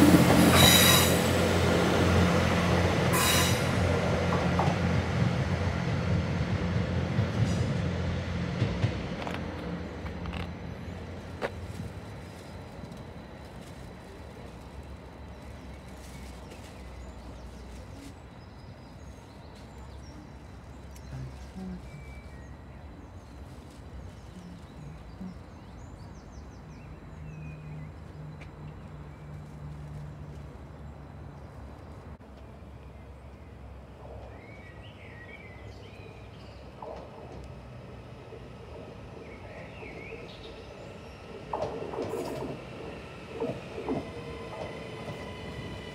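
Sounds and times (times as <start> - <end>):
faint bird chirps: 15.4 - 26.2.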